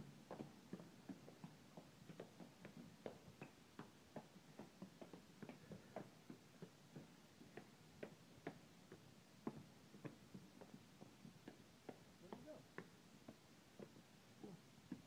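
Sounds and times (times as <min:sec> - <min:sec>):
footsteps on concrete stairs: 0:00.0 - 0:15.0.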